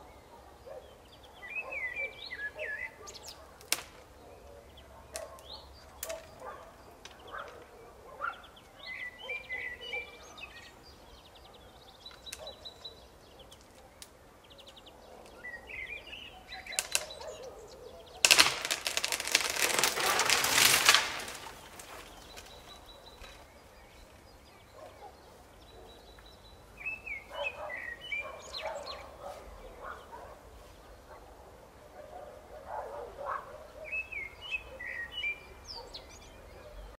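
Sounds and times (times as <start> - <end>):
birds chirping: 0.0 - 37.0
branches cracking and swishing: 3.6 - 4.1, 5.2 - 6.5, 16.6 - 17.3, 18.2 - 24.2
tree crashing down: 16.7 - 17.2, 18.2 - 23.4.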